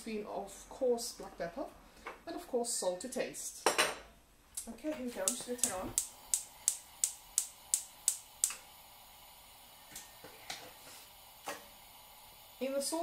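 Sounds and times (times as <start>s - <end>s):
gas hob igniter clicking: 4.6s - 13.0s.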